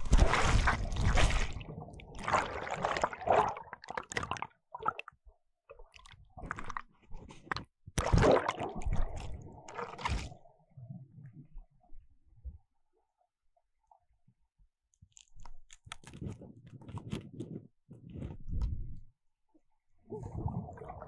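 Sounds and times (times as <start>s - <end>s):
bubbly clicks underwater: 0.0s - 10.4s
water splashing and gurgling: 0.0s - 11.2s, 20.0s - 21.0s.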